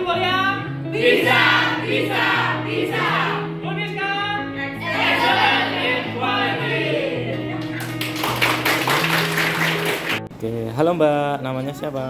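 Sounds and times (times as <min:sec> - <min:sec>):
bass line: 0:00.0 - 0:09.0.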